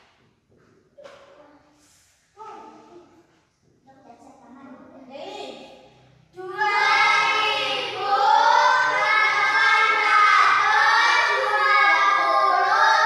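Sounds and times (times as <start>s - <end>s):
children singing in unison: 6.4s - 13.0s.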